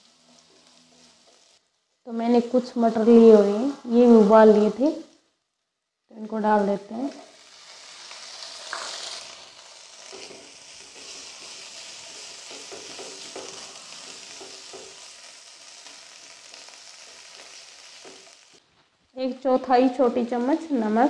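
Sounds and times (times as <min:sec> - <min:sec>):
potatoes sizzling in hot oil: 0:00.0 - 0:05.1, 0:06.3 - 0:18.6
spatula scraping a pan: 0:07.2 - 0:18.6.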